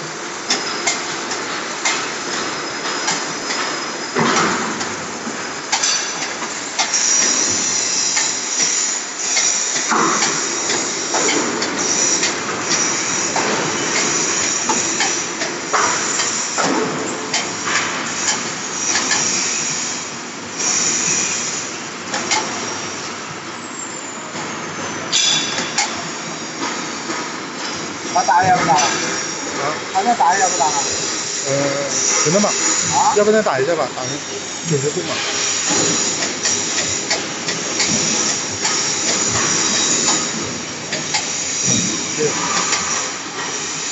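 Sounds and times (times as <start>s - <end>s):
machine noise with high whine: 0.0s - 43.9s
metal clanks of pipe crimping: 25.1s - 26.0s.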